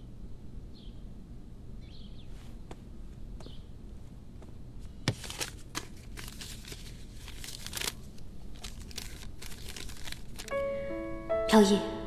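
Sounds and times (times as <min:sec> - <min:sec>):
paper rustling: 0:05.0 - 0:10.6.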